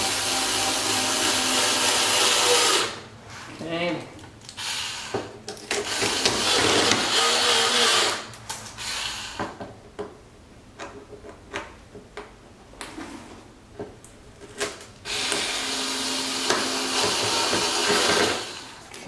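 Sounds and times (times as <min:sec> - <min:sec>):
cordless screw gun running: 0:15.1 - 0:18.8.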